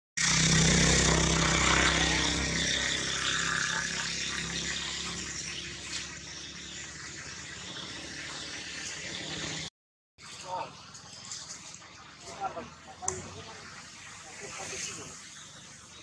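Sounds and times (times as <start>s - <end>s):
vehicle engine humming: 0.2s - 9.7s
steady high hiss: 12.4s - 15.8s.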